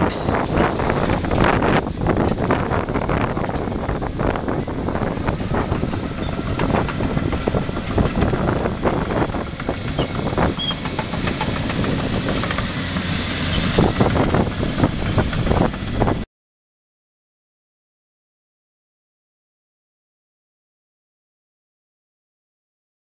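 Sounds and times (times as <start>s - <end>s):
steel tracks clattering: 0.0s - 16.2s
diesel engine running: 0.0s - 16.3s.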